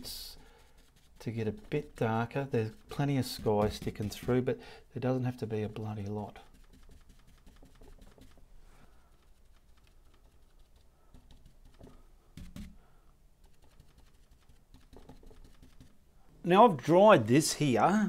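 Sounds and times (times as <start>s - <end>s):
paintbrush tapping on canvas: 11.1s - 12.8s.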